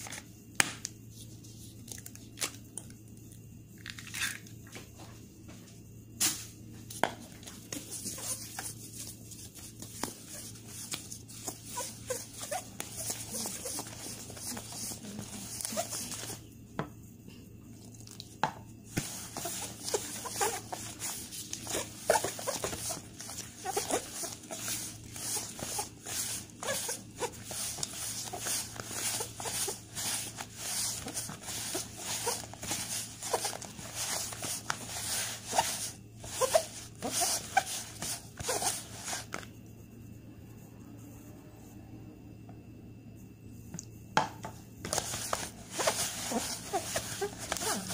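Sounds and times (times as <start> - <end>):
spoon stirring dough in bowl: 7.5 - 16.5, 18.9 - 39.3.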